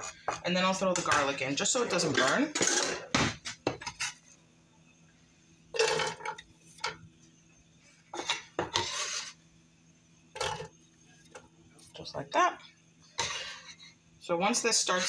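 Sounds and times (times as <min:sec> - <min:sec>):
onion scraped into skillet: 0:08.1 - 0:09.4.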